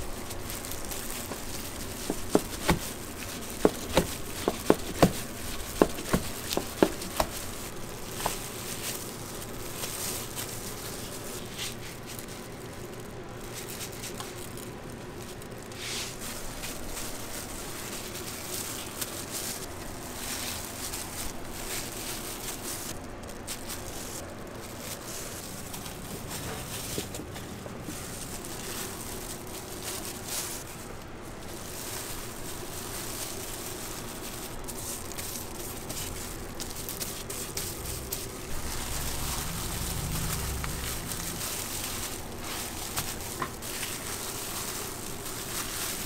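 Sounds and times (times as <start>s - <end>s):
faint handling sounds: 0.0s - 46.0s
kitchen room noise: 0.0s - 46.0s.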